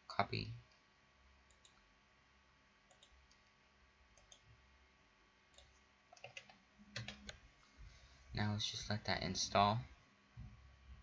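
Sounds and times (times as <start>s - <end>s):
computer mouse clicks: 1.5s - 1.8s, 2.9s - 3.5s, 4.2s - 4.5s, 5.5s - 7.4s.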